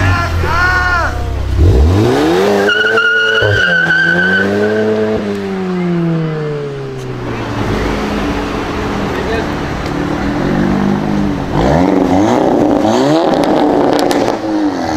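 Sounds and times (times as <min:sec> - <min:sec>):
car engine revving: 0:00.0 - 0:14.9
tyres squealing: 0:02.5 - 0:05.1.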